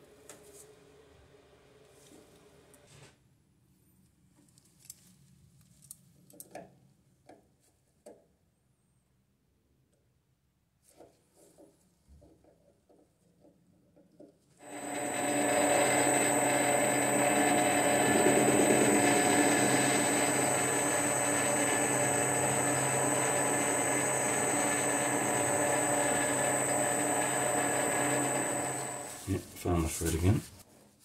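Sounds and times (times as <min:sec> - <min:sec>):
lathe motor humming and whining: 0:14.6 - 0:29.3
lathe switching on: 0:14.6 - 0:29.3.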